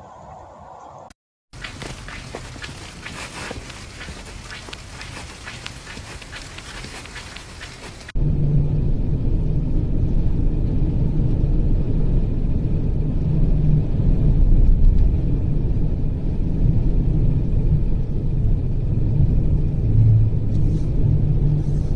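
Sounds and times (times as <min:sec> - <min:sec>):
vehicle driving on snowy road: 0:01.6 - 0:08.2
faint engine hum: 0:01.6 - 0:21.9.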